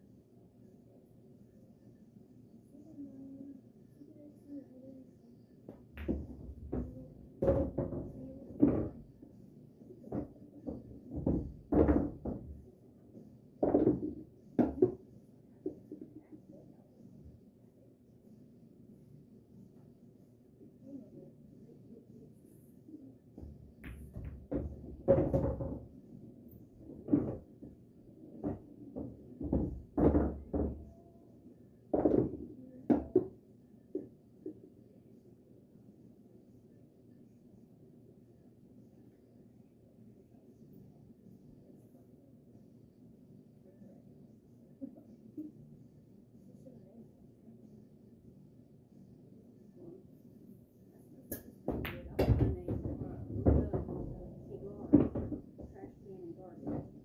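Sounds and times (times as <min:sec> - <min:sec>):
balls knocking on cushions: 0:05.7 - 0:09.1, 0:10.0 - 0:12.6, 0:23.4 - 0:25.9, 0:26.8 - 0:27.8, 0:28.4 - 0:30.8, 0:51.7 - 0:54.2.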